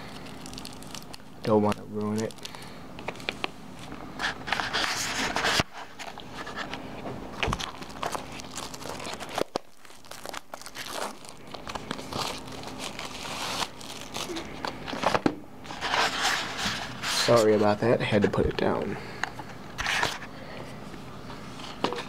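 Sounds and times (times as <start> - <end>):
plastic wrap crinkling and tearing: 0.0 - 15.1.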